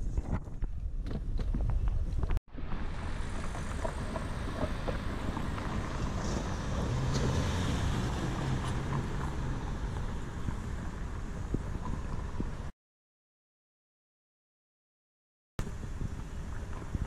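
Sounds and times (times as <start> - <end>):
wind rushing over microphone: 0.0 - 12.7, 15.6 - 17.0
passing car hum: 2.5 - 12.7
road traffic noise: 2.5 - 12.7.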